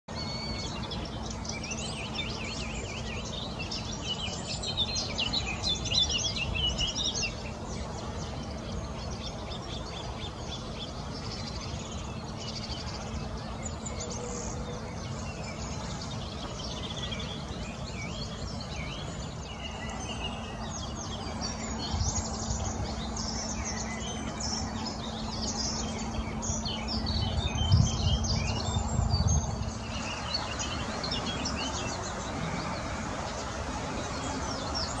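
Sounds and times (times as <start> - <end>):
bird chirps and calls: 0.1 - 35.0
flowing river: 0.1 - 35.0
low rumble: 20.3 - 35.0.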